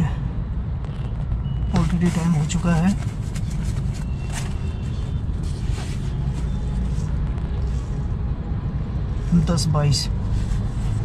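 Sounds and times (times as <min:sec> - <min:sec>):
car engine rumble and road noise: 0:00.0 - 0:11.0.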